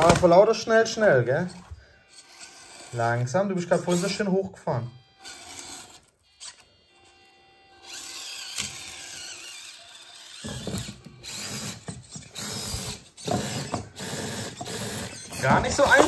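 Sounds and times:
small electric motor whining: 1.4 - 16.0
tyres scraping on plastic: 10.3 - 16.0.

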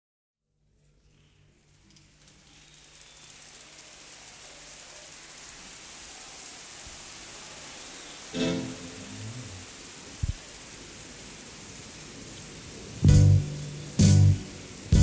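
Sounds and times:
rain-like hiss: 0.4 - 15.0
music: 8.4 - 9.2, 13.0 - 15.0.

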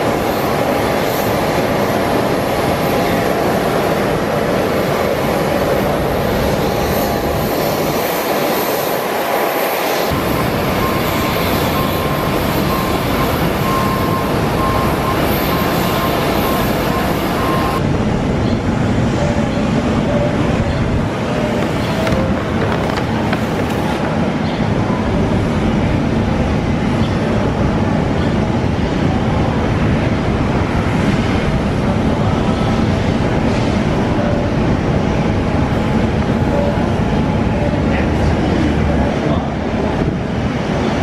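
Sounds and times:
jet aircraft engine: 0.0 - 41.0
repeated beep: 10.1 - 17.8.

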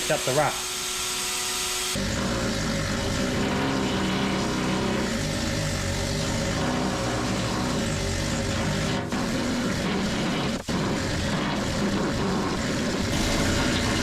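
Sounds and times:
motor droning: 1.6 - 14.0.

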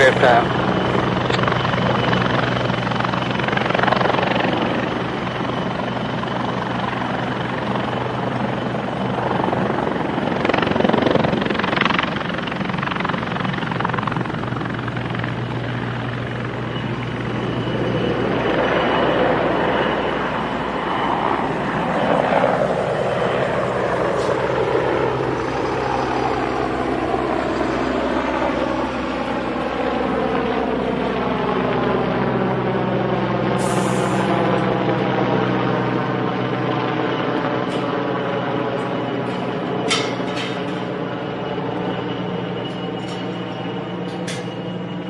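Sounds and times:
helicopter turbine whine: 0.0 - 45.0.

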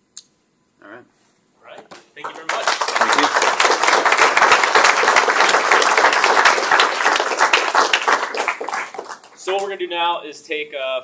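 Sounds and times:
audience applauding: 2.2 - 9.7.

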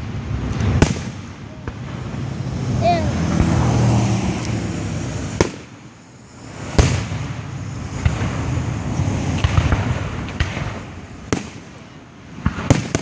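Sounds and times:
light fireworks pops: 0.0 - 2.0, 5.4 - 5.9, 6.6 - 13.0
fireworks bursting with bangs: 0.0 - 3.8, 4.4 - 13.0
steady rumble of fireworks: 0.0 - 13.0.

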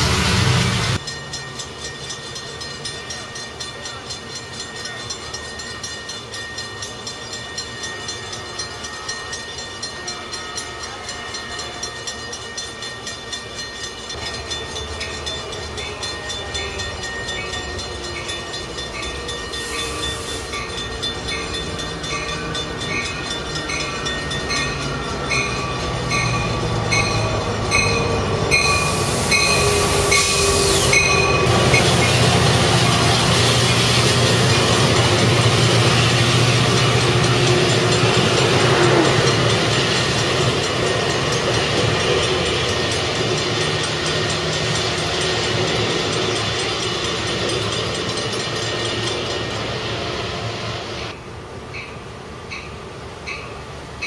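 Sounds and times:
crossing warning bell ringing: 0.0 - 54.0
diesel train engine: 0.0 - 54.0
train wheel noise: 0.0 - 54.0.

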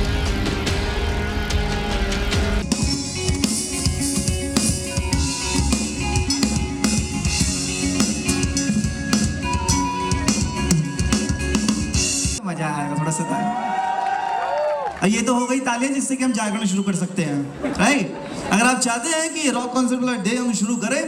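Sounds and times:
drum kit beat: 0.0 - 12.4
electric guitar: 0.0 - 12.4.

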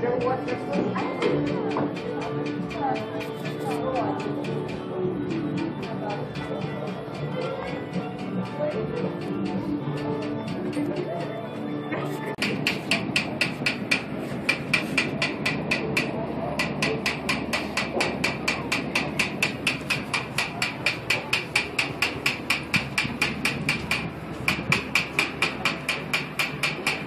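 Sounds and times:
rapid mechanical clicking: 12.4 - 27.0.

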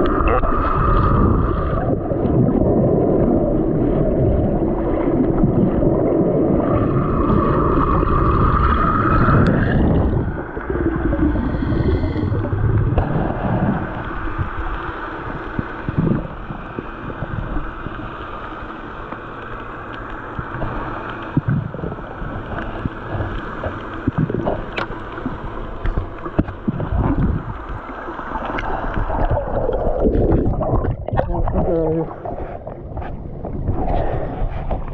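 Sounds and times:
muffled underwater rush: 0.0 - 34.9
sharp clicks underwater: 7.6 - 10.8, 11.5 - 34.9.

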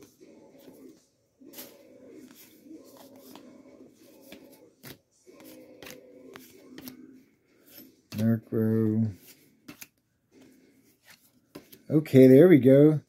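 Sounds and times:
cards scraping rustle: 1.5 - 11.9.

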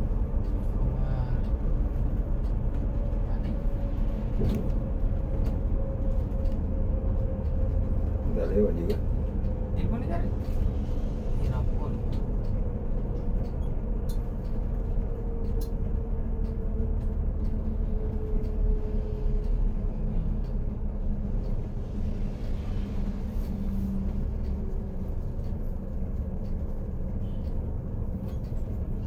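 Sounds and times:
diesel engine drone and road noise: 0.0 - 29.0.

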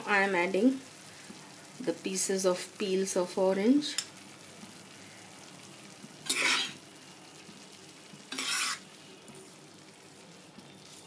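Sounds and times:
rice sizzling: 0.0 - 11.0
metal spoon scraping a pan: 6.2 - 6.8, 8.3 - 8.9.

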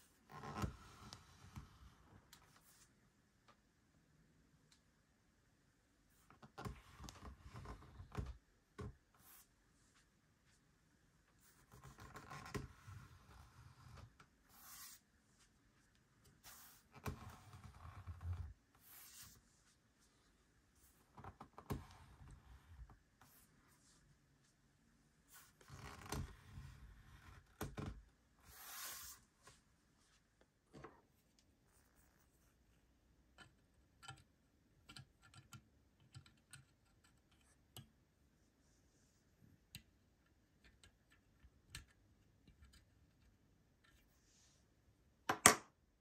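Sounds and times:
faint model handling scrapes: 12.1 - 15.0, 16.3 - 19.5, 28.4 - 29.3.

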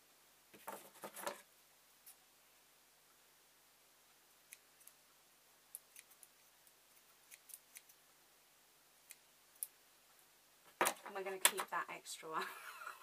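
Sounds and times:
scissors snipping fabric: 7.2 - 8.0.

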